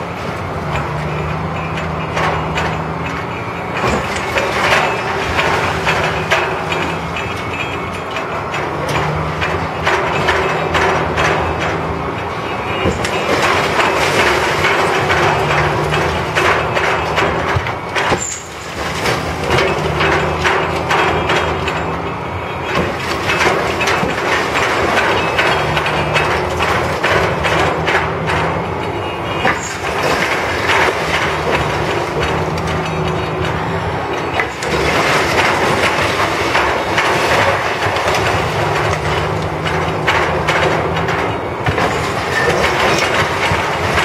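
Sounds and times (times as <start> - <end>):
diesel engine running: 0.0 - 44.0
machinery clanking: 0.0 - 44.0
rubble falling: 12.7 - 21.9, 29.4 - 33.6, 34.3 - 44.0.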